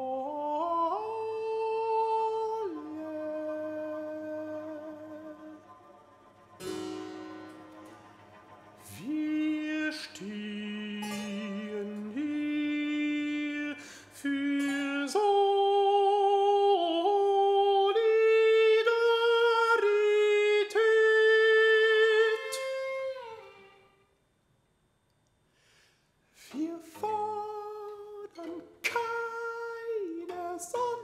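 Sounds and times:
countertenor singing long notes: 0.0 - 23.9.

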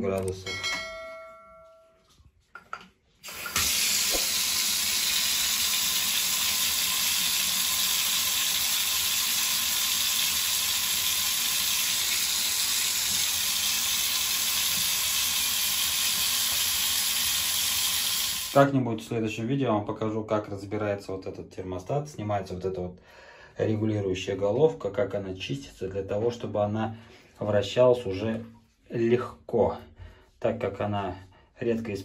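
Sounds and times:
water running into bathtub: 3.1 - 18.6.

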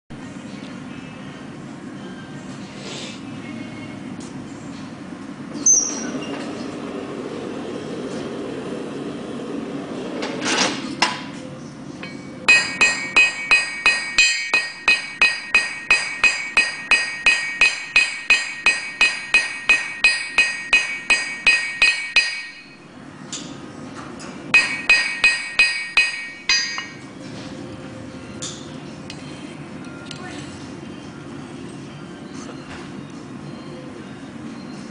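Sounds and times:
hammer striking steel on anvil: 12.0 - 23.5, 24.5 - 27.1.

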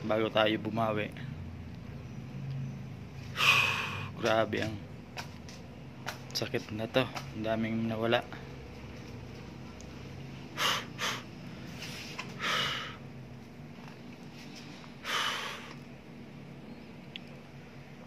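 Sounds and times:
electric fan hum: 0.0 - 18.0
man breathing hard: 3.2 - 4.2, 10.5 - 13.1, 14.6 - 15.9.

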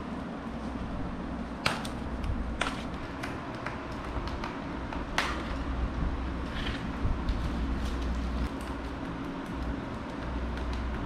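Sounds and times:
steady low hum: 0.0 - 11.0
sharp clicks and knocks: 8.0 - 11.0.

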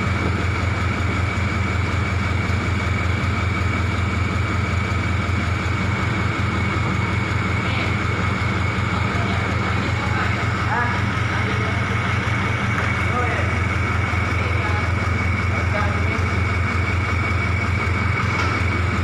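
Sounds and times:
machinery low hum: 0.0 - 19.0.

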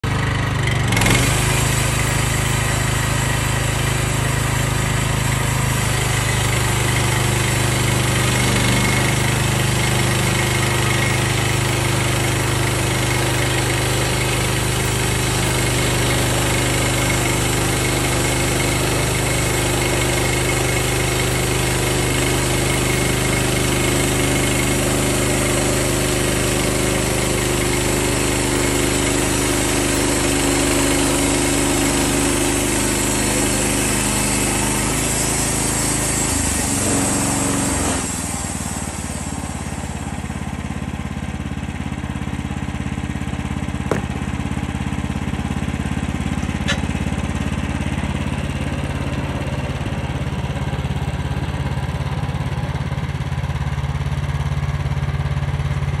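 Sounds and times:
bandsaw mill engine running: 0.0 - 56.0
band blade hissing through log: 1.1 - 39.6
sharp knocks: 43.9 - 44.4.

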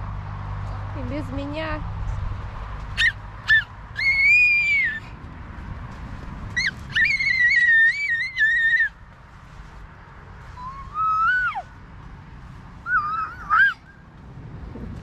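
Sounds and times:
toddler squealing: 3.0 - 5.1, 6.6 - 9.0, 10.6 - 11.7, 12.8 - 13.9.

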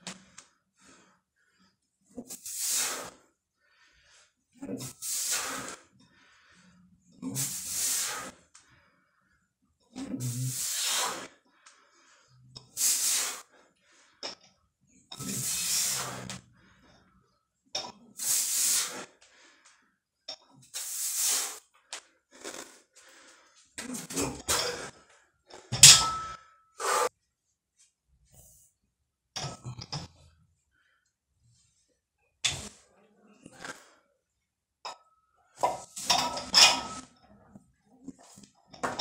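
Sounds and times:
man breathing hard: 5.1 - 6.9.

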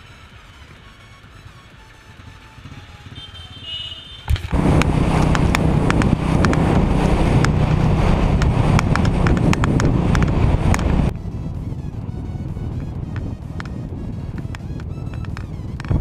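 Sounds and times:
motorcycle engine running: 0.0 - 16.0
sharp buffeting pops: 4.3 - 11.2, 12.0 - 16.0
wind rushing over microphone: 4.3 - 16.0.

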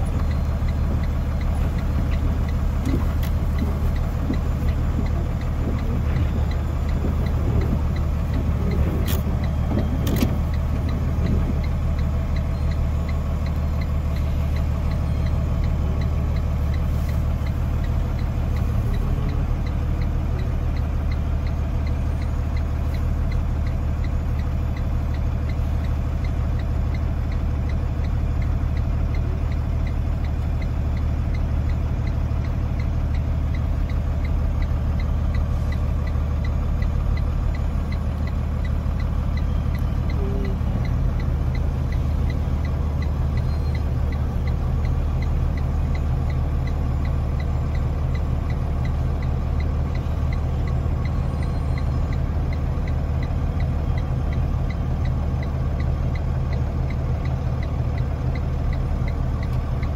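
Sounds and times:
faint regular ticking: 0.0 - 59.9
truck diesel engine idling: 0.0 - 59.9.

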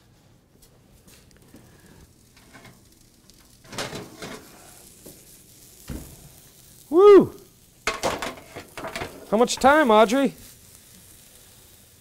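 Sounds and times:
burgers sizzling: 1.0 - 12.0
sheet pan scraping on oven rack: 3.6 - 4.6, 7.9 - 9.8.

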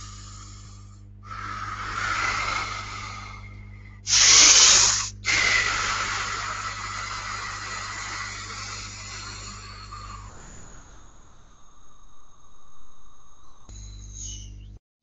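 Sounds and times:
forceful exhale: 0.0 - 13.7
breath hissing into microphone: 0.0 - 14.5.

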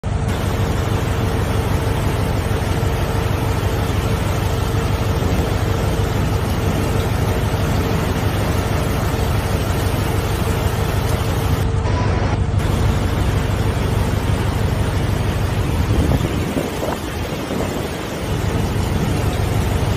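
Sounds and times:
floodwater rushing down street: 0.0 - 19.9.

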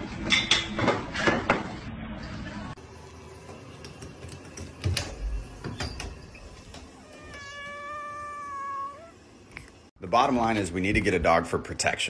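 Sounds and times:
cat meowing: 7.0 - 9.2.

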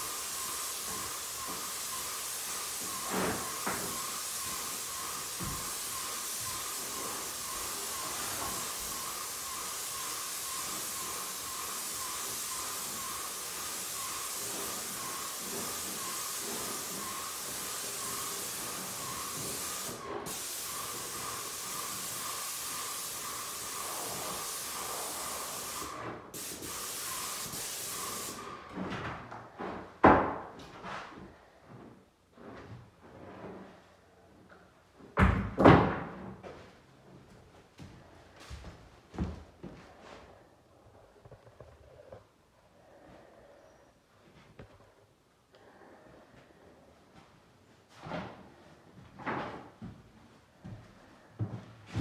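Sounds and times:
paint spray gun hissing: 0.0 - 28.4.

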